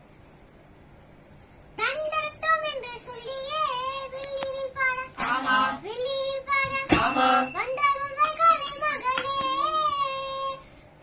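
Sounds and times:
bells jingling: 1.7 - 4.2, 6.9 - 11.0
lower voices singing: 5.2 - 5.9, 6.8 - 7.6.

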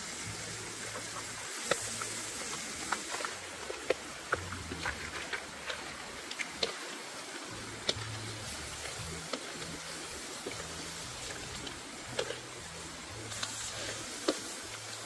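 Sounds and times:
crabs sizzling in a wok: 0.0 - 15.0
spatula and shells clicking on pan: 7.8 - 14.9.

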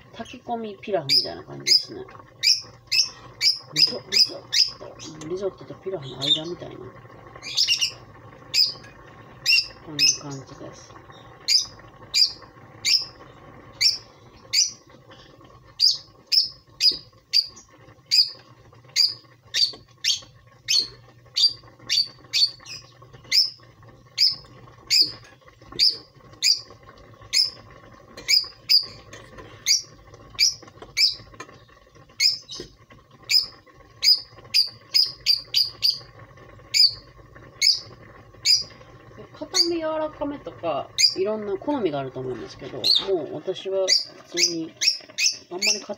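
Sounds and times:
faint steady hum: 0.0 - 45.9
small bird chirping: 1.1 - 5.2, 7.4 - 8.8, 9.4 - 10.5, 11.1 - 13.2, 13.8 - 14.8, 15.8 - 18.4, 19.0 - 23.6, 28.3 - 32.7, 33.3 - 36.0, 36.7 - 37.0, 37.6 - 38.7, 41.0 - 41.2, 43.8 - 45.9.

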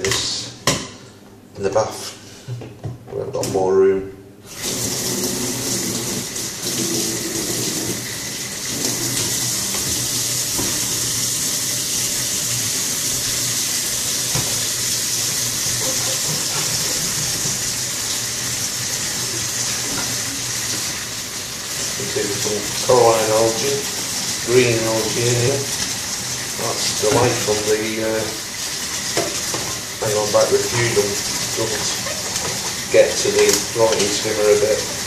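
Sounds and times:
tap water running into sink: 4.5 - 35.0.

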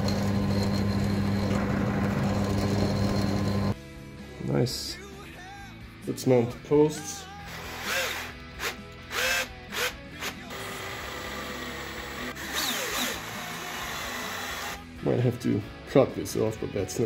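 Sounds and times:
background music: 1.6 - 17.0.

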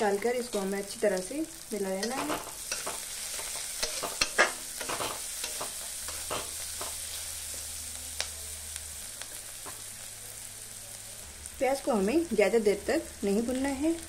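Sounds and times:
onion sizzling in oil: 0.0 - 14.0
spatula scraping a pan: 2.0 - 7.3.

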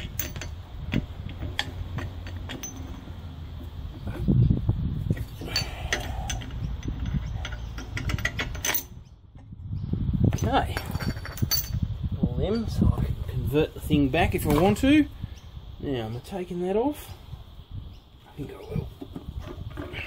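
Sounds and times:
metal clicks and clinks: 0.0 - 3.2, 5.2 - 9.0, 10.4 - 11.8.

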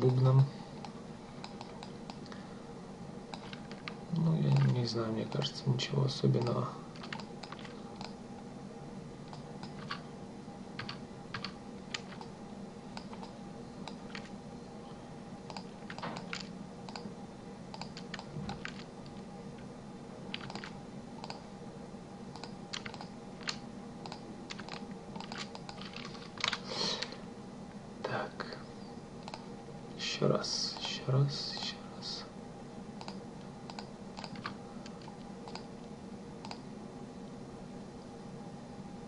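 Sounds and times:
steady low hum: 0.0 - 39.0
computer keyboard and mouse clicking: 0.8 - 2.3, 3.3 - 4.8, 6.4 - 8.2, 9.3 - 10.0, 10.8 - 12.3, 13.0 - 14.3, 15.5 - 17.1, 17.7 - 19.2, 20.3 - 21.4, 22.3 - 27.1, 29.2 - 29.5, 33.0 - 35.7, 36.4 - 36.6.

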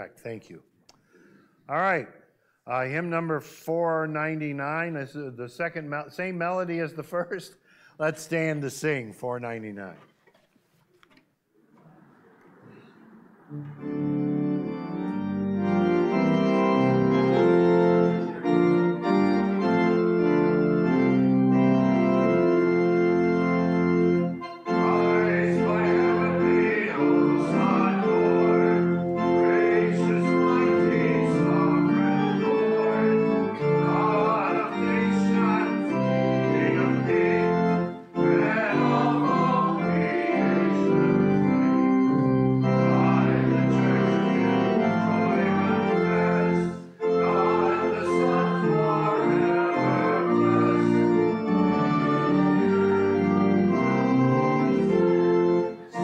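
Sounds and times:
church organ chords: 1.1 - 10.0, 12.7 - 56.0
congregation singing a hymn: 12.0 - 56.0.

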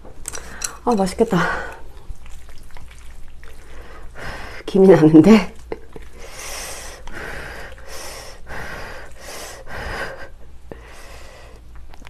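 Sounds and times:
wet sticky noodle squelches: 0.9 - 9.2.

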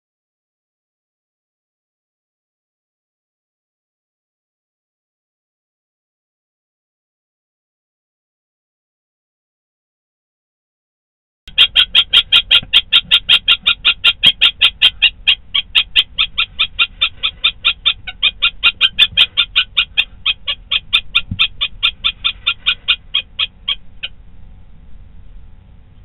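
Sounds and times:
kestrel alarm call: 11.5 - 24.2.

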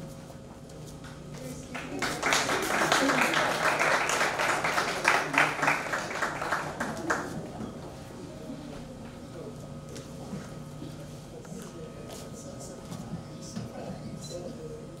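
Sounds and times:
people applauding: 1.7 - 7.8.

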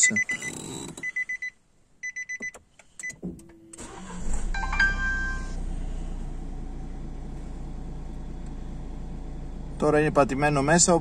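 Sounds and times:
car warning chime beeps: 0.0 - 5.7
car engine cranking and idling: 2.6 - 11.0.

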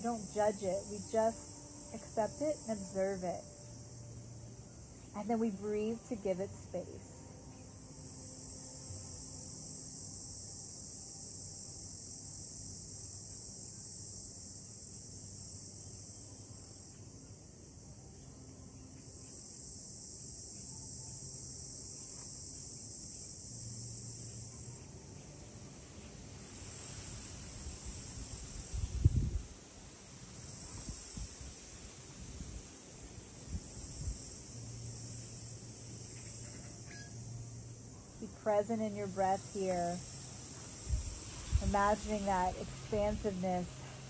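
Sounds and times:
insects chorus: 0.0 - 44.0.

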